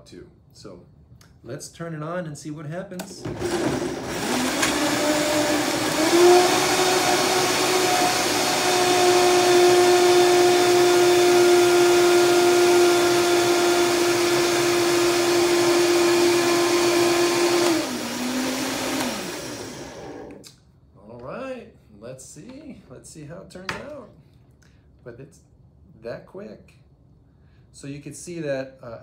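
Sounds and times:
blender motor whining: 3.2s - 20.4s.

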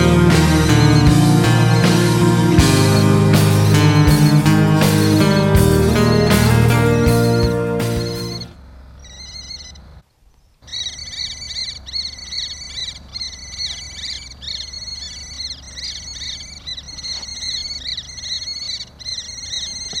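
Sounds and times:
fast high-pitched animal chirping: 8.0s - 9.8s, 10.6s - 20.0s.

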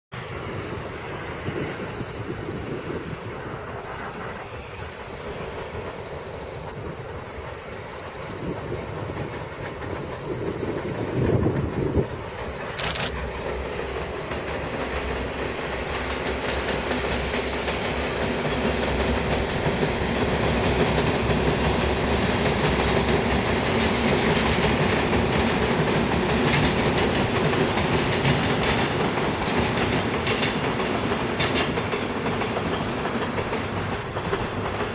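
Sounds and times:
train wheels rumbling on rails: 0.2s - 34.9s
clacks over rail joints: 8.2s - 34.9s.

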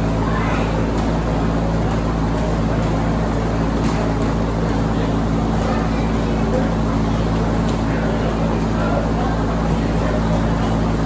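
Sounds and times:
low machine hum: 0.0s - 11.0s.

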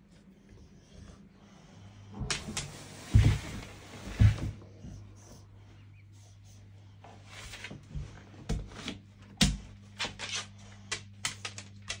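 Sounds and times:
dog claws clicking on wooden floor: 9.3s - 12.0s.

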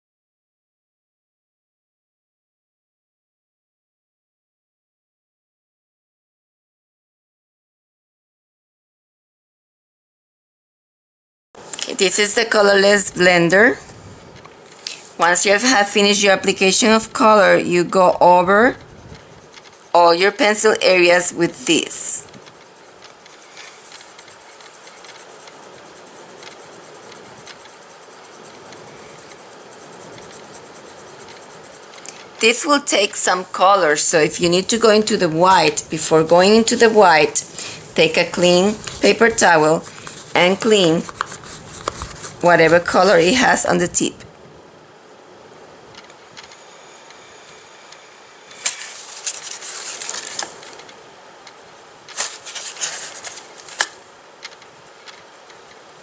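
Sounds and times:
pencil scratching on paper: 15.2s - 44.1s, 48.6s - 50.8s.

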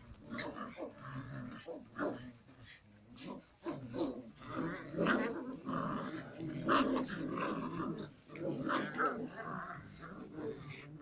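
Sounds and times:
puppies growling: 0.0s - 11.0s.

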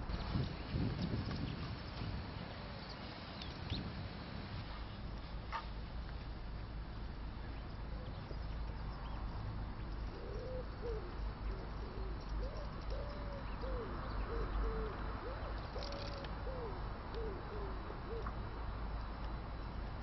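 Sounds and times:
low steady rumble: 0.0s - 20.0s
pigeon cooing: 10.0s - 18.5s.

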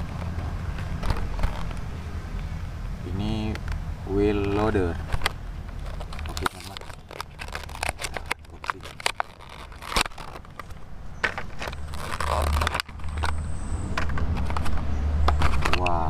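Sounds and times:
plastic blister pack crackling: 0.0s - 1.9s, 4.3s - 13.4s
cardboard tearing: 5.7s - 13.3s.

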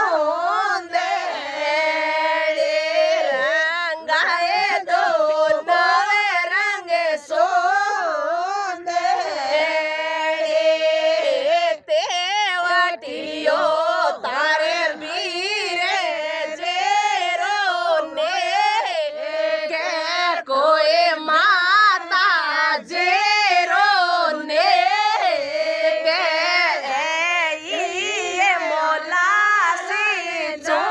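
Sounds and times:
woman singing folk song: 11.4s - 13.1s, 13.9s - 16.1s, 19.8s - 25.2s, 26.1s - 30.9s.

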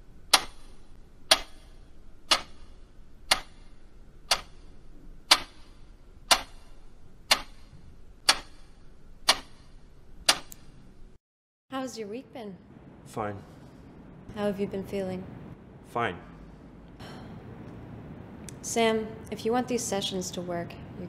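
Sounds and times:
clock ticking: 0.3s - 10.7s.

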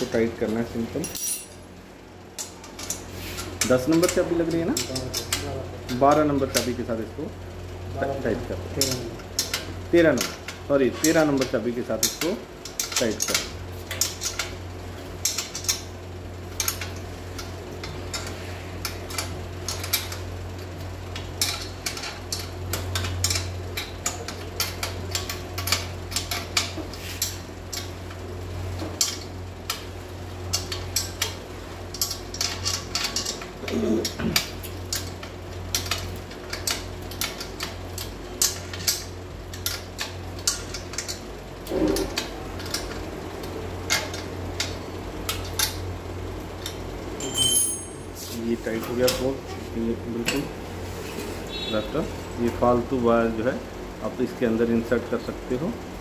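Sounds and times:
steady low hum: 0.0s - 56.0s
wrench clinking on metal nut: 1.0s - 1.6s, 46.6s - 48.1s.

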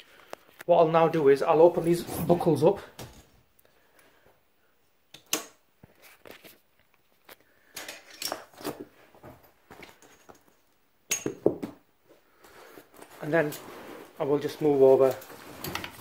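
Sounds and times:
webbing straps rustling: 12.3s - 16.0s.

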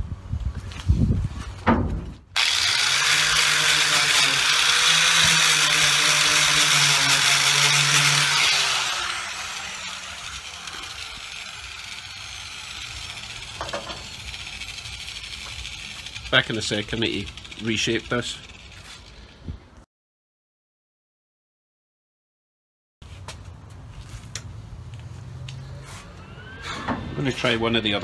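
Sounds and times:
angle grinder on steel: 2.4s - 19.3s.

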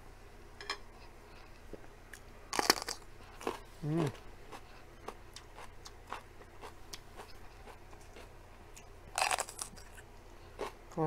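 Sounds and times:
crisp pepper crunch: 2.5s - 4.7s, 9.1s - 11.0s.

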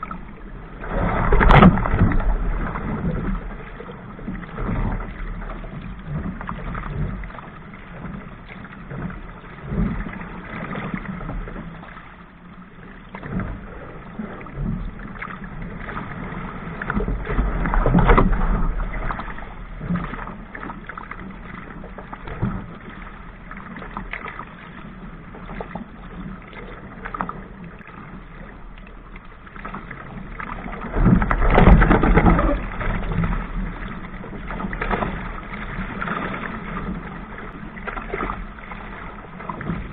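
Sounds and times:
water splashing against hull: 0.0s - 39.9s
wind buffeting microphone: 30.5s - 37.4s.

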